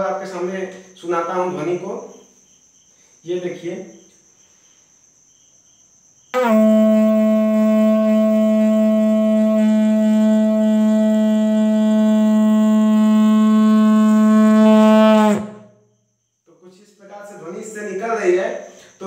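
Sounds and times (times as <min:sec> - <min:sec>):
pipe blown like a horn: 0:06.4 - 0:15.8.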